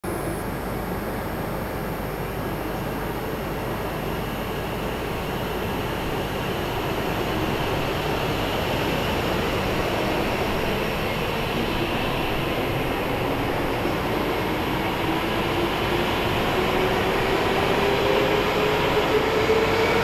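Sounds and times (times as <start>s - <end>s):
train rushing: 5.4s - 20.0s.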